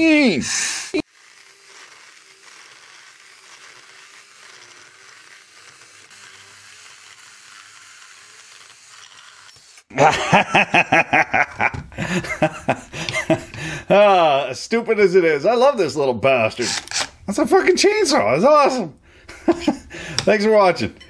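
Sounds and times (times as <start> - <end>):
mini chainsaw cutting metal: 0.6 - 9.9, 16.6 - 17.2.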